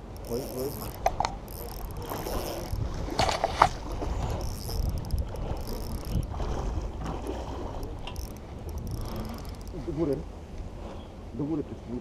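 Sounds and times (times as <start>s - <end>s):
sharp clicks: 0.0s - 6.3s, 7.8s - 9.8s
wind on microphone: 0.2s - 11.2s.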